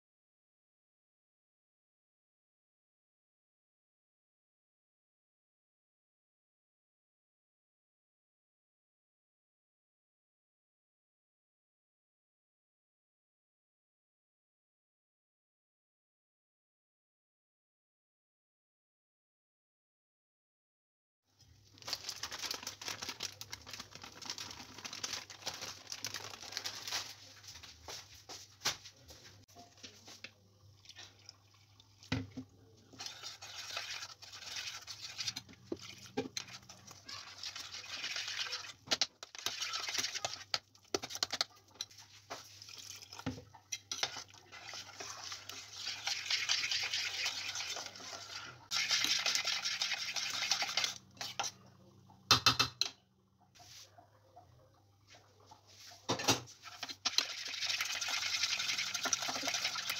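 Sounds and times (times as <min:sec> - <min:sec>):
powder pouring into pot: 0:21.7 - 0:27.2, 0:32.9 - 0:51.6, 0:56.6 - 0:59.9
spoon scraping metal pot: 0:32.9 - 0:51.6, 0:56.5 - 0:59.9.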